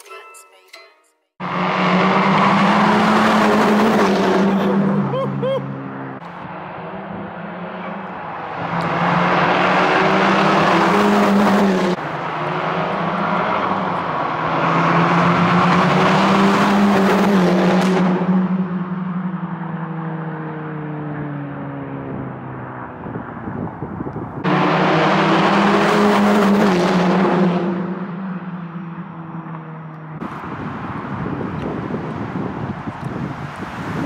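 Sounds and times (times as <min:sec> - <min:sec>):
car engine driving by: 0:01.4 - 0:23.6.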